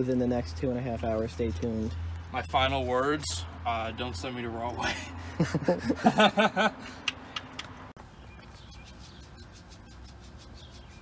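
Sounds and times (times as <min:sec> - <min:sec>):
man laughing: 0:04.8 - 0:07.0.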